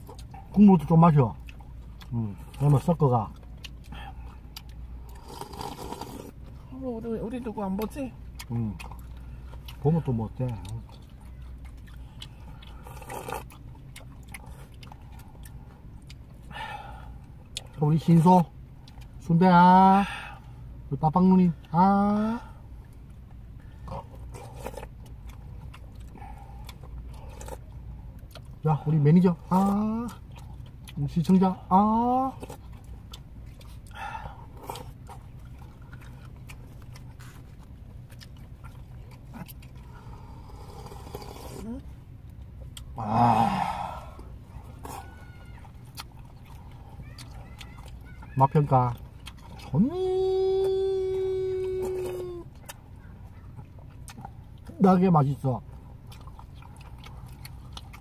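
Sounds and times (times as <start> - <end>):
person chewing food: 0.0 - 6.8, 7.6 - 21.8, 22.5 - 58.0
steady low hum: 0.0 - 58.0
person slurping: 5.1 - 6.4, 39.9 - 41.8.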